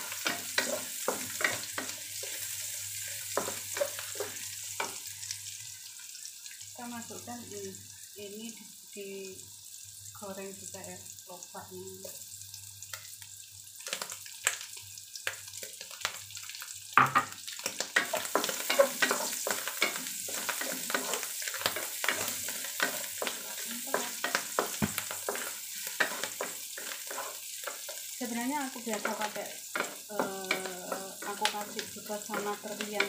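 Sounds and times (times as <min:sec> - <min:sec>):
wooden spatula scraping wok: 0:00.0 - 0:05.0, 0:18.0 - 0:28.1
food sizzling in oil: 0:00.0 - 0:33.0.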